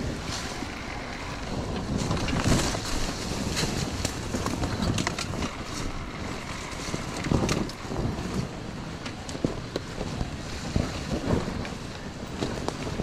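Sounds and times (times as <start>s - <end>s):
knocks and clatter: 0.0s - 13.0s
steady rushing noise: 0.0s - 13.0s
wind buffeting microphone: 0.0s - 13.0s.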